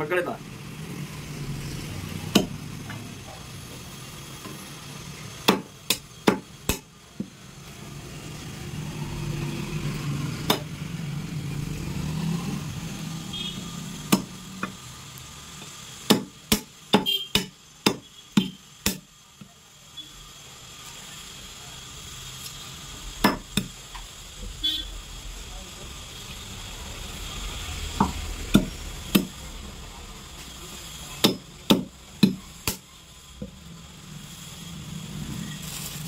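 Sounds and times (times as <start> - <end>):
cleaver chopping: 2.3 - 2.6, 5.4 - 6.9, 10.4 - 10.7, 14.1 - 14.4, 16.1 - 19.0, 23.2 - 23.7, 28.0 - 29.3, 31.2 - 32.8.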